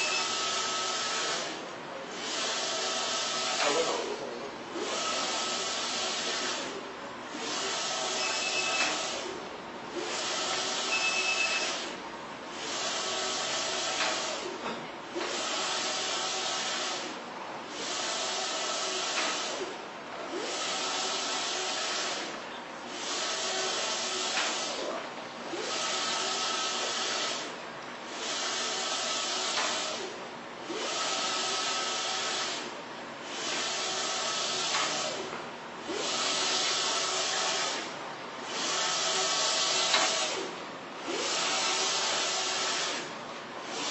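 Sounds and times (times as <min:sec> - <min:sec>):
printer motor whine: 0:00.0 - 0:01.6, 0:02.2 - 0:04.0, 0:04.7 - 0:09.4, 0:10.0 - 0:12.0, 0:23.1 - 0:27.5, 0:28.2 - 0:32.7, 0:33.4 - 0:43.1.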